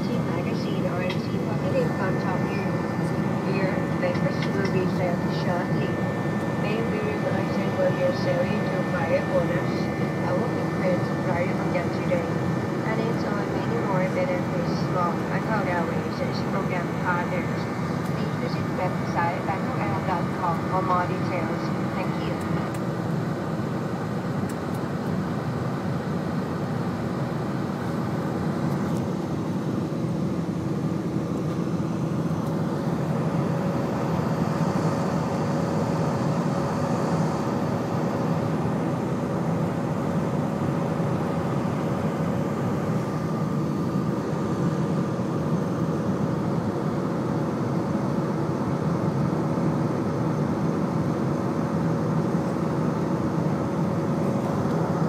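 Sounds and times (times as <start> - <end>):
steady engine tones: 0.0 - 22.9
jet engine and airflow noise: 0.0 - 55.0.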